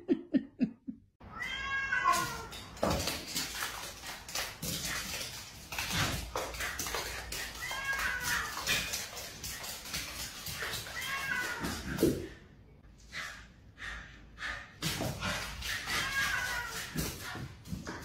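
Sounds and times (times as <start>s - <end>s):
cat meowing: 1.3s - 2.6s, 7.4s - 8.7s, 10.6s - 12.0s, 15.7s - 17.1s.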